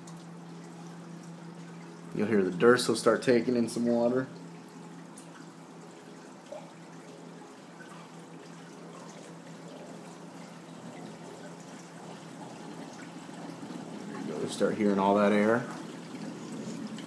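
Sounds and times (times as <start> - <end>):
faint water drips: 0.0 - 17.0
water trickling into drain pipe: 0.0 - 17.0.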